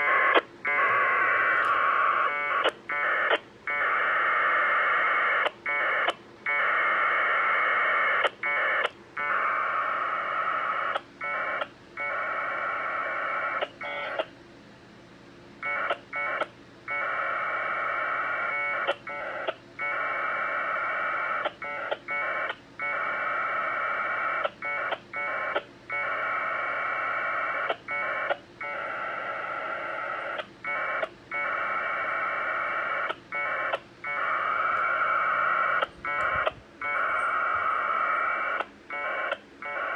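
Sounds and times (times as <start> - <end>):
two-tone data warble bursts: 0.0 - 14.3, 15.6 - 39.9.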